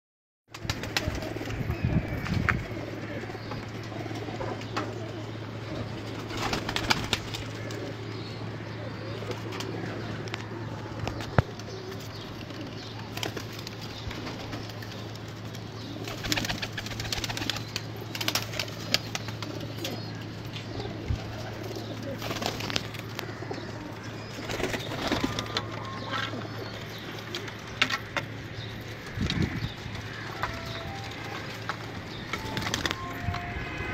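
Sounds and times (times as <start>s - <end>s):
pigeons cooing: 0.5s - 33.5s
steady low hum: 0.5s - 33.9s.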